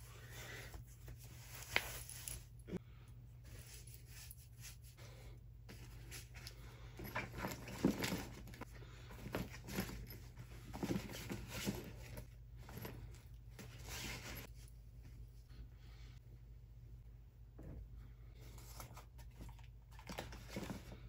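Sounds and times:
gear rustling in fabric bag: 5.7 - 14.7.

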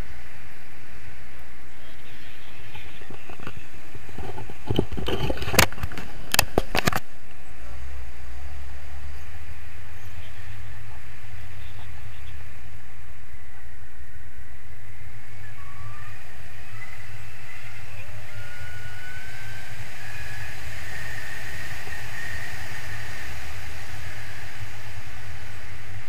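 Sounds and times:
wind rushing over microphone: 0.0 - 26.0
sharp knocks and crackles: 2.7 - 7.1.

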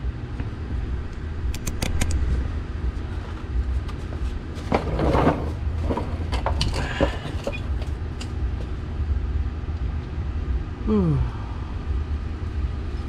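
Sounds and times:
low rumble: 0.0 - 13.0
scraping rustle: 2.2 - 8.0.

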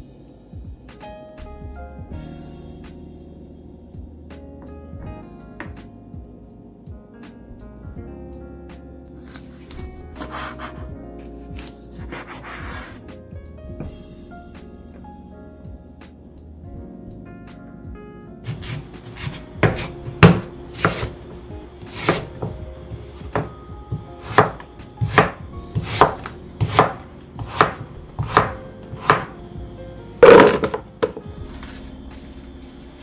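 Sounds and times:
knife chopping on cutting board: 18.5 - 21.2, 21.9 - 22.5, 23.3 - 29.3, 30.2 - 31.2.

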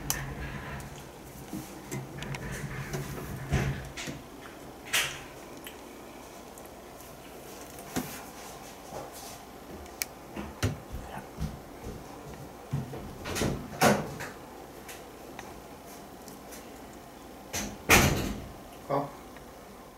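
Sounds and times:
door knocks clicks and rattles: 2.2 - 4.2.

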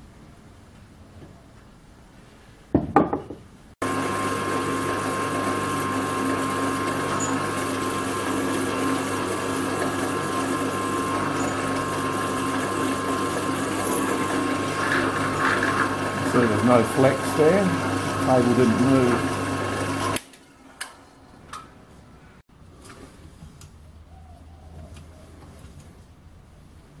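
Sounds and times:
drill press boring steel: 3.8 - 20.2.

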